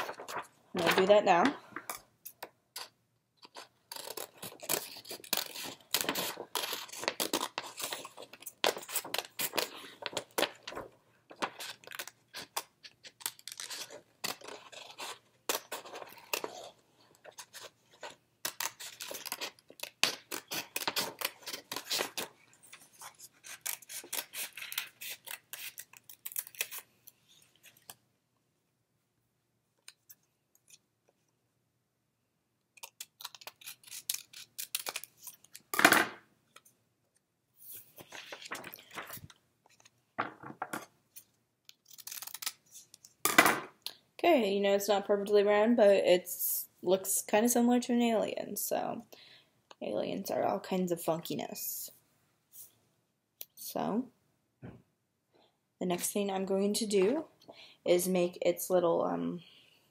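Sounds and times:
scissors snipping paper: 0:02.2 - 0:10.6, 0:23.0 - 0:26.9, 0:32.8 - 0:35.5, 0:41.7 - 0:43.1.

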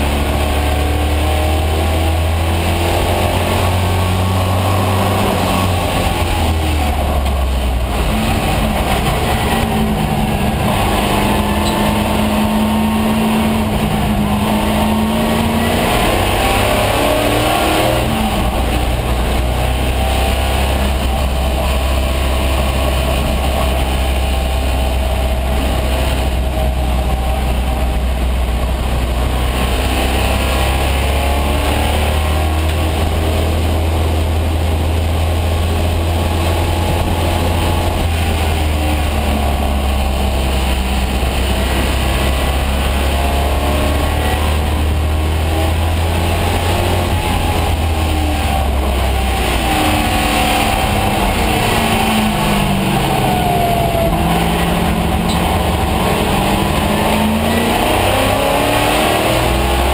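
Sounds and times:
deep low drone: 0:00.0 - 0:59.9
race car engine revving: 0:00.0 - 0:59.9.

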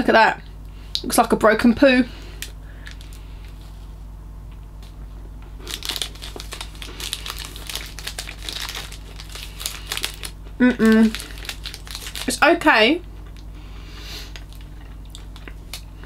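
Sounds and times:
plastic wrapper crinkling: 0:02.4 - 0:03.6, 0:05.6 - 0:13.5, 0:14.3 - 0:15.9.

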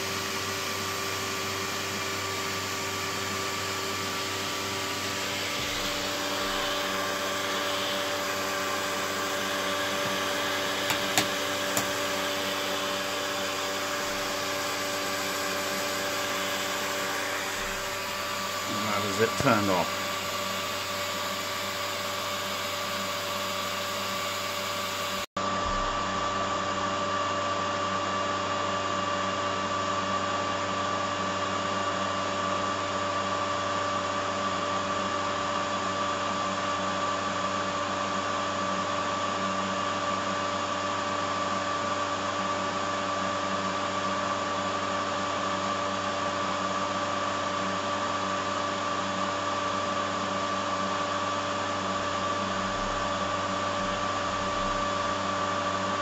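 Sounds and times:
machinery motor drone: 0:00.0 - 0:26.6.

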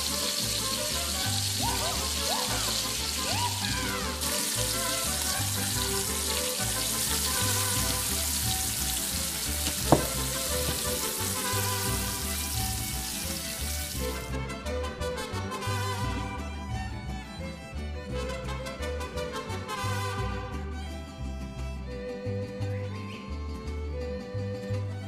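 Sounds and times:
shrimp sizzling in a skillet: 0:00.0 - 0:14.2
background music: 0:00.0 - 0:25.0
sharp knock: 0:09.7 - 0:10.8.

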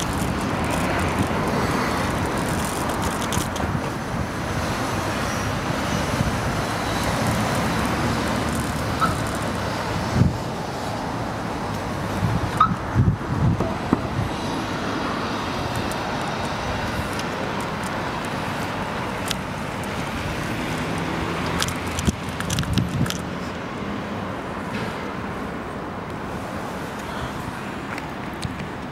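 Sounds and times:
wind on microphone: 0:00.0 - 0:10.8, 0:11.9 - 0:14.8, 0:21.8 - 0:23.3
street traffic noise: 0:00.0 - 0:28.9
bicycle knocks and rattles: 0:21.4 - 0:23.2.

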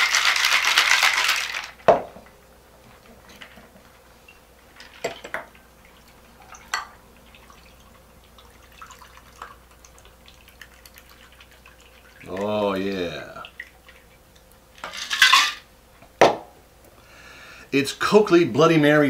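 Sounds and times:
liquid trickling into a glass: 0:04.2 - 0:14.6.

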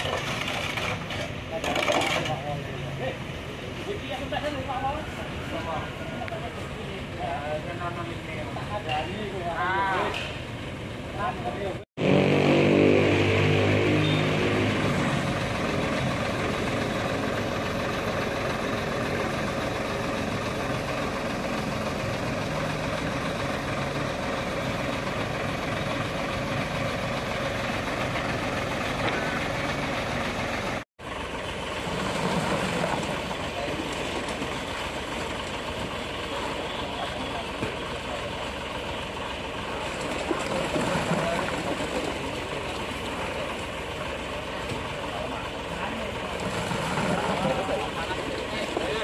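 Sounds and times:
diesel engine running: 0:10.4 - 0:49.0.

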